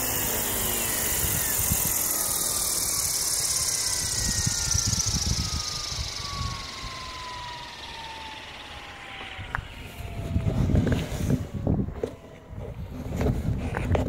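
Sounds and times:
rotor rushing hiss: 0:00.0 - 0:10.2
helicopter motor whine falling: 0:00.0 - 0:14.0.

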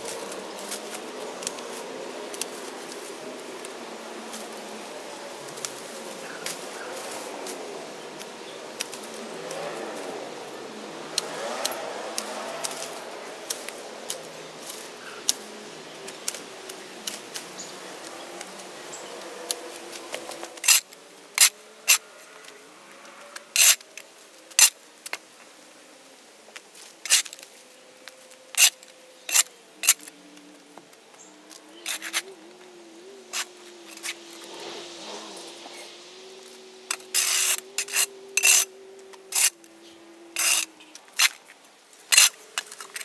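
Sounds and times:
brush and vines rustling: 0:00.0 - 0:43.0
shovel scraping asphalt: 0:11.2 - 0:15.4, 0:19.5 - 0:24.8, 0:26.8 - 0:27.5, 0:28.5 - 0:30.2, 0:31.8 - 0:32.4, 0:33.2 - 0:39.6, 0:40.4 - 0:43.0.

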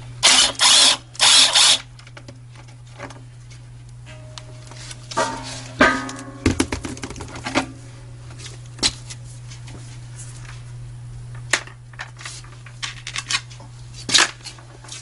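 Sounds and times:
steady low hum: 0:00.0 - 0:15.0
sheet metal clanking: 0:04.1 - 0:07.8.

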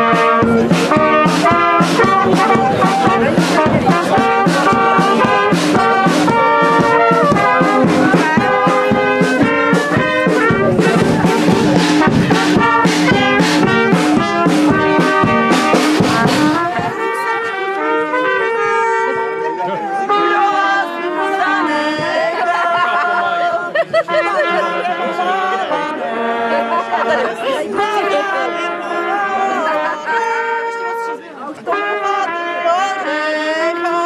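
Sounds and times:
brass band music: 0:00.0 - 0:34.0.

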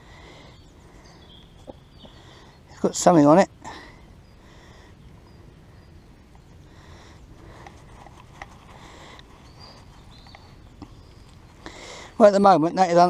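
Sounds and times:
low steady rumble: 0:00.0 - 0:12.2
rubbing soil off find: 0:07.4 - 0:12.2.

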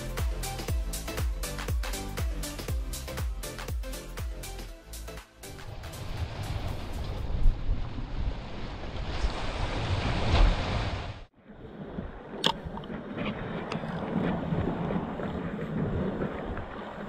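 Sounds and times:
sea waves washing against rocks: 0:05.6 - 0:11.3
wind buffeting microphone: 0:05.7 - 0:10.8, 0:11.5 - 0:17.0.

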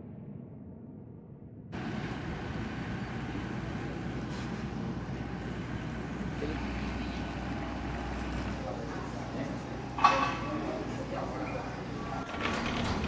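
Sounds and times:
muffled airliner cabin drone: 0:01.7 - 0:12.7
jet airliner noise: 0:01.7 - 0:13.0
thin high whine: 0:01.8 - 0:12.2.

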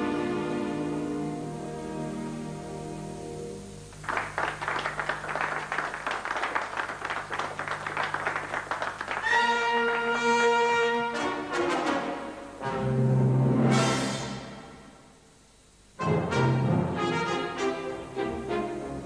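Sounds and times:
audience clapping: 0:03.9 - 0:10.2
orchestral chord: 0:16.0 - 0:19.0.

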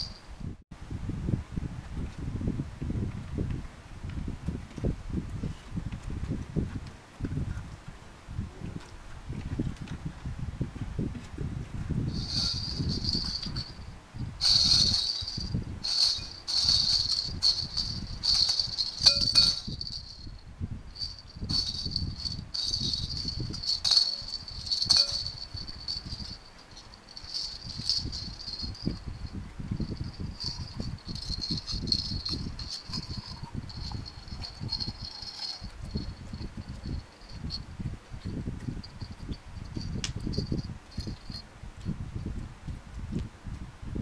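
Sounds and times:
jingle balls jingling: 0:12.1 - 0:13.8, 0:14.4 - 0:20.4, 0:21.0 - 0:37.6, 0:38.9 - 0:41.4.

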